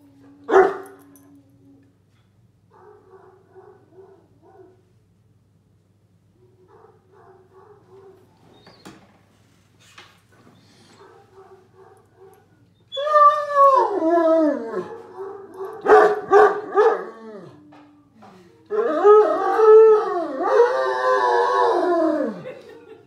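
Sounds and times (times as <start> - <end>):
dog howling: 0.0 - 1.9, 12.9 - 18.1, 18.7 - 22.5.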